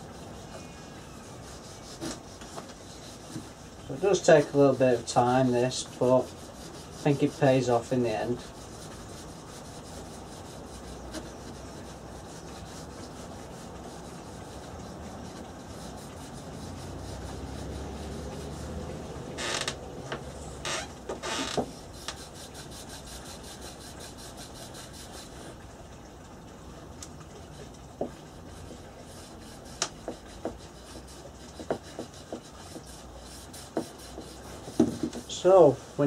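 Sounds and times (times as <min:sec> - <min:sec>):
cloth rag rubbing wood: 0:00.0 - 0:19.7, 0:20.6 - 0:25.6, 0:28.0 - 0:36.0.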